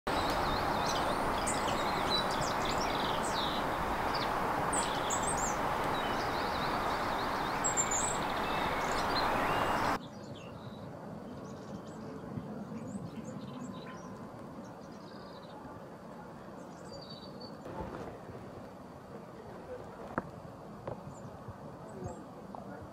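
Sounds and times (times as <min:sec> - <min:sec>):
loud steady hiss: 0:00.1 - 0:10.0
birds chirping and singing: 0:00.1 - 0:10.8.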